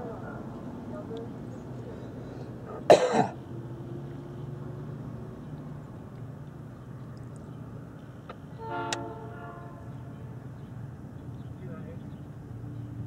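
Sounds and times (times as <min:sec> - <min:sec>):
multi-tone horn blast: 0:08.6 - 0:10.3.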